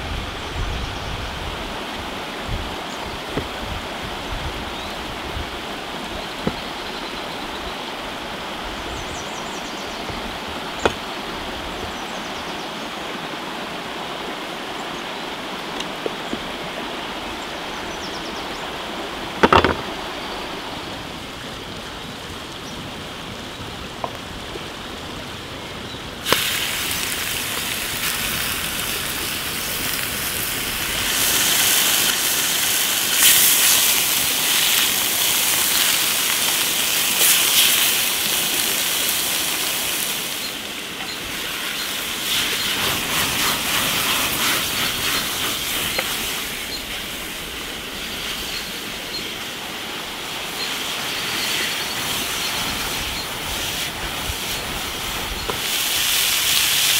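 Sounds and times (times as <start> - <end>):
meat sizzling in hot oil: 26.2 - 40.5, 50.6 - 56.9.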